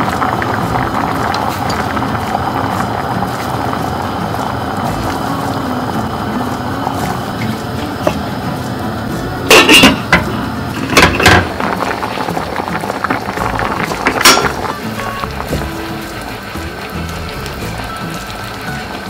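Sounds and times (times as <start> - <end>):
background music: 0.0 - 19.0
pot lid clanking on pan: 9.4 - 11.7, 14.1 - 15.6.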